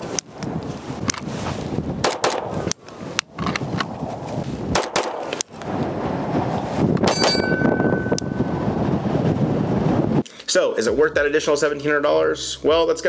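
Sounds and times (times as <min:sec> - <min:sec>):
pistol shots: 0:02.0 - 0:02.6, 0:04.7 - 0:05.4
high ringing tone: 0:07.1 - 0:08.7.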